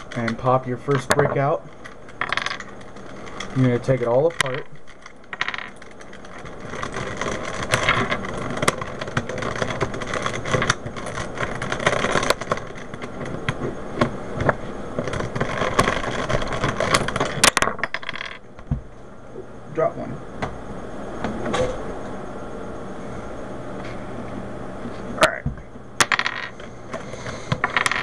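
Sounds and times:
plastic cube pieces rattling: 4.3s - 13.3s, 15.0s - 17.4s.

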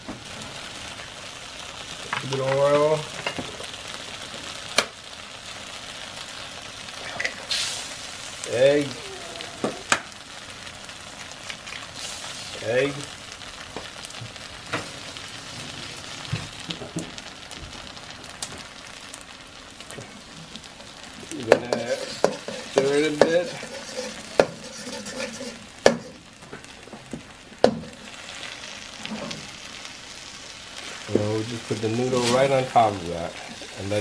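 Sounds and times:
eggs sizzling in oil: 0.0s - 34.0s
metal spatula scraping wok: 21.6s - 26.3s, 27.8s - 29.5s.

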